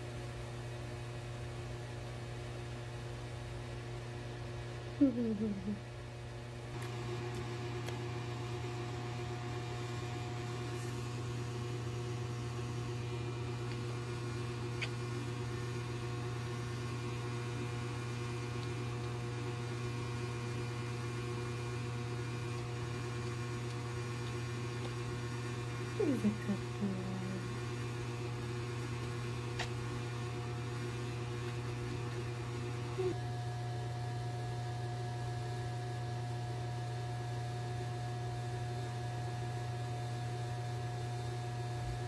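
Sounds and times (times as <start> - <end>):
motor humming: 6.8 - 34.3.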